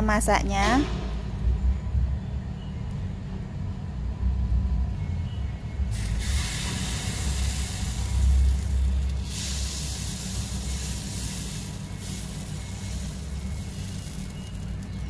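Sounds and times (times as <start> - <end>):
low steady rumble: 0.0 - 15.0
batter sizzling in hot mould: 5.9 - 15.0.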